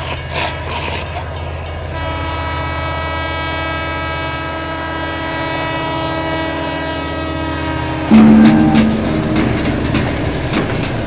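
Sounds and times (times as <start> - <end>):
low rumble: 8.1 - 11.0
sustained chord drone: 8.1 - 11.0.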